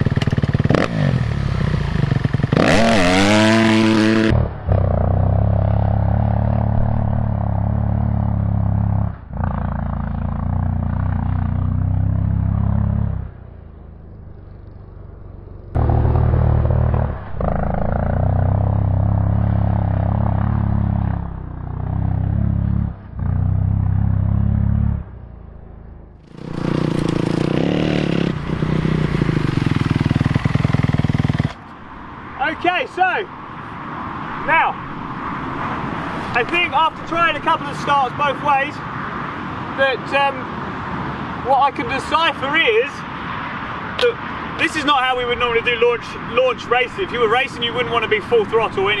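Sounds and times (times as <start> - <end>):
dirt bike engine at full throttle: 0.0 - 13.4, 14.0 - 25.1, 26.2 - 31.6.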